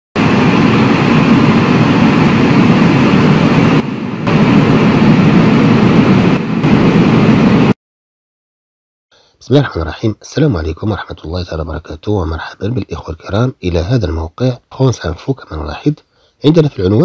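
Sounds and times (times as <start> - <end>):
loud rumbling sound effect: 0.2 - 7.8.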